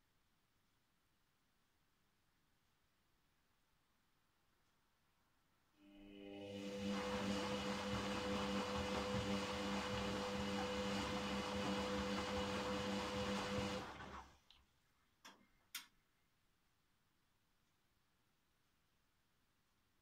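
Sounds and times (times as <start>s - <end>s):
washing machine drum tumbling: 6.8s - 14.3s.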